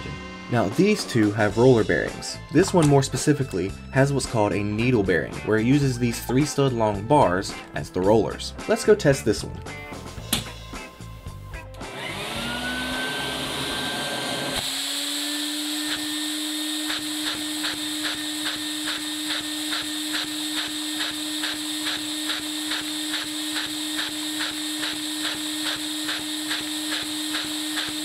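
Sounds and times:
vacuum cleaner whine: 11.8s - 28.0s.

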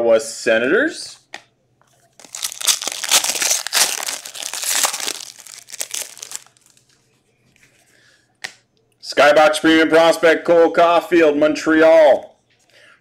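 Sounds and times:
wrapper crinkling and tearing: 2.1s - 6.9s.

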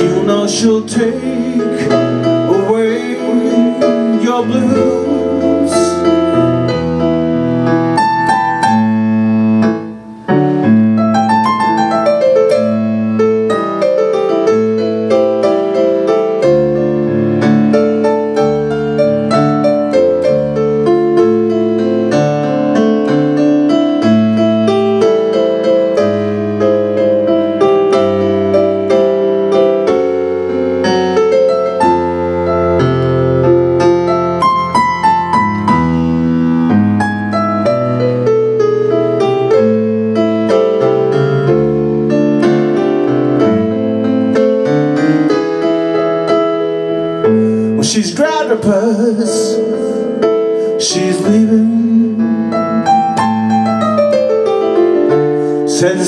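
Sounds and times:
digital piano blues chords: 0.0s - 56.0s.

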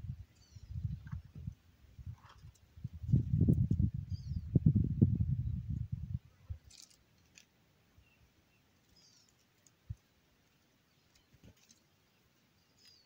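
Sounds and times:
faint bird chirps: 0.2s - 1.3s, 3.9s - 7.0s, 8.0s - 13.0s.

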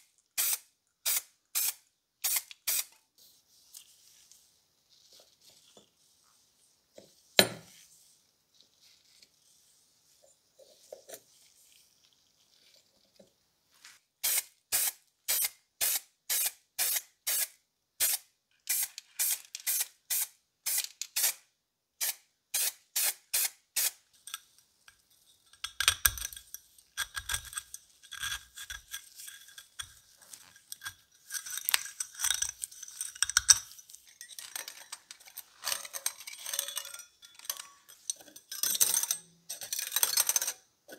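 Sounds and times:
spray can bursts: 0.4s - 2.9s, 14.2s - 21.4s, 22.0s - 24.0s.

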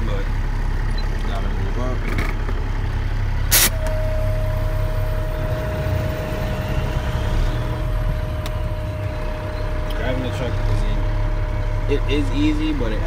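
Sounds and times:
diesel truck engine running: 0.0s - 13.0s
burst of air brake release: 3.5s - 4.1s
steady high tone: 3.5s - 12.9s.

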